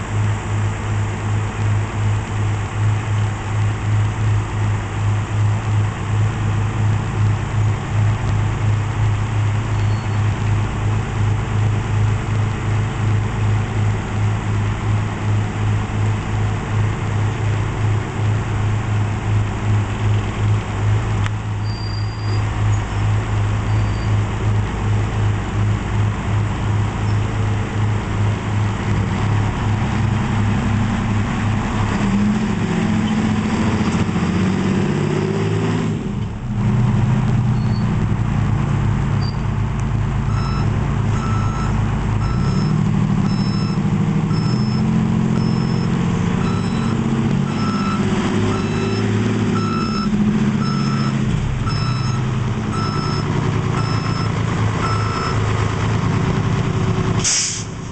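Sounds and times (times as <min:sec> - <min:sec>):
diesel engine running: 0:00.0 - 0:57.9
backup alarm beeping: 0:40.3 - 0:55.4.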